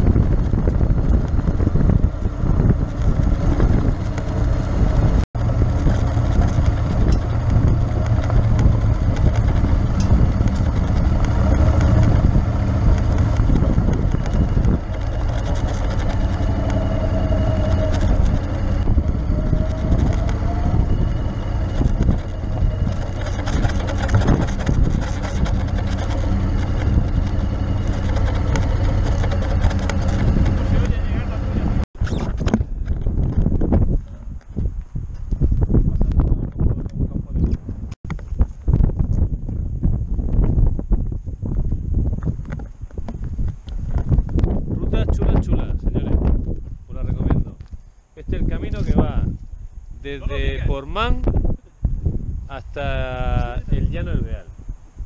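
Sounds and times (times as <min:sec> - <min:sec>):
tyres crackling on gravel: 0:00.0 - 0:31.8
scooter engine running: 0:00.0 - 0:34.4
wind on microphone: 0:00.0 - 0:55.0.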